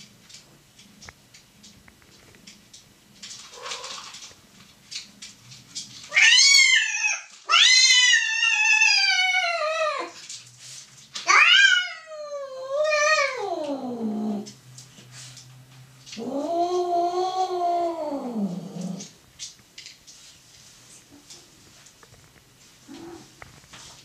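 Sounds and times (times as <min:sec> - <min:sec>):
cat yowling: 0:06.1 - 0:10.2, 0:11.3 - 0:14.4
faint rustling: 0:13.4 - 0:24.0.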